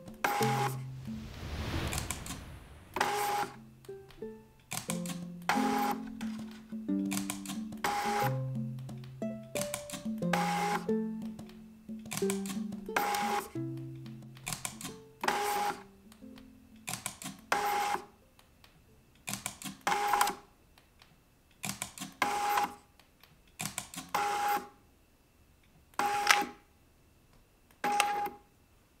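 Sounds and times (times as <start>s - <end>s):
quick clicks: 3.0s - 15.8s, 16.8s - 18.1s.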